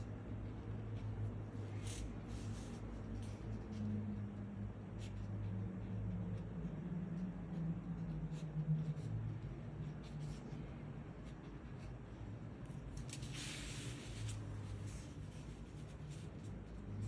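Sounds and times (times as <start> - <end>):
brush pen scratching on paper: 0.4 - 17.0
paper sliding across desk: 13.1 - 15.1.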